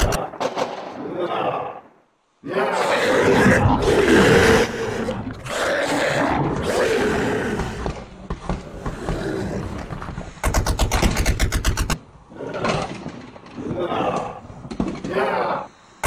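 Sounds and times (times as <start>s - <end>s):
monster roaring and growling: 2.5s - 8.0s
rapid rattling burst: 10.4s - 12.0s.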